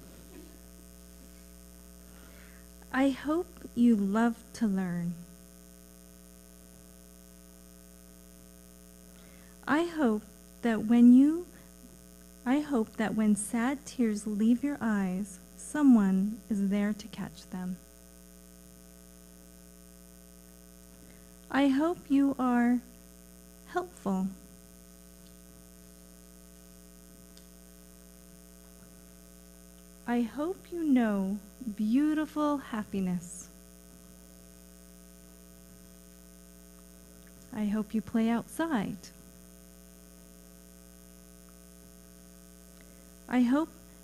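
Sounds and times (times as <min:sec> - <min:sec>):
electrical mains hum: 0:00.0 - 0:44.0
woman reading aloud: 0:03.0 - 0:05.2, 0:09.7 - 0:11.5, 0:12.5 - 0:17.8, 0:21.5 - 0:22.9, 0:23.7 - 0:24.4, 0:30.1 - 0:33.5, 0:37.5 - 0:39.1, 0:43.3 - 0:43.7.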